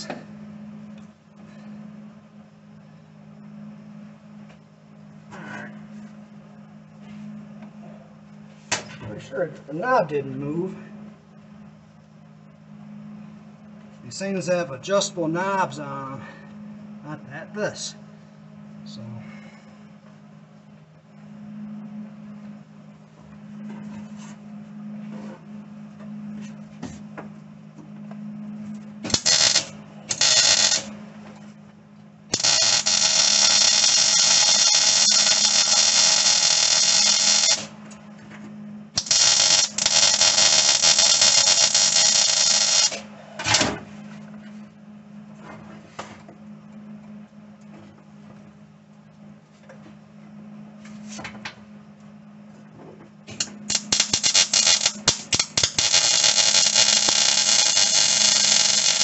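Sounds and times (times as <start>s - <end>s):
steady low hum: 0.0s - 59.0s
welding arc crackling: 29.0s - 31.0s, 32.3s - 37.8s, 38.9s - 43.1s, 53.4s - 59.0s.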